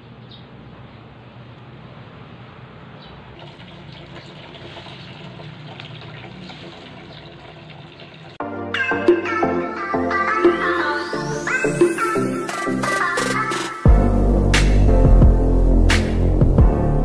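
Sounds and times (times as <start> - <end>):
loud music with a beat: 10.2 - 17.0.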